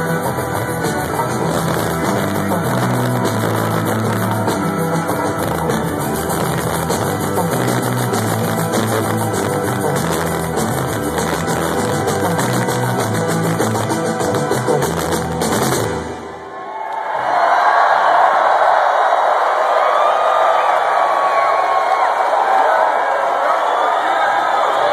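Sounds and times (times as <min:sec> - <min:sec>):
drum beat: 0:00.0 - 0:16.2
bass line: 0:00.0 - 0:16.4
guitar: 0:00.0 - 0:16.6
keyboards: 0:00.0 - 0:16.6.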